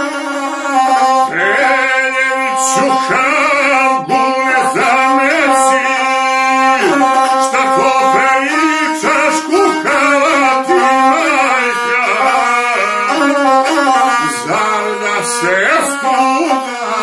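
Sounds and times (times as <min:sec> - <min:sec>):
bowed string instrument drone: 0:00.0 - 0:17.0
man singing: 0:00.0 - 0:17.0.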